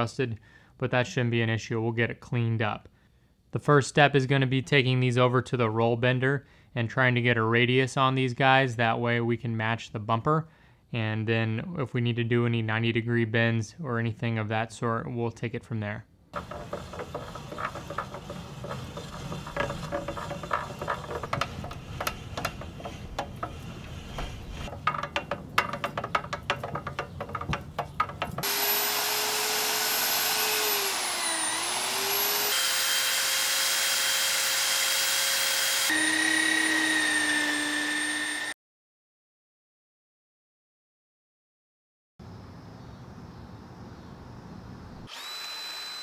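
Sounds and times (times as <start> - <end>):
roll bender clicking and creaking: 16.4 - 28.5.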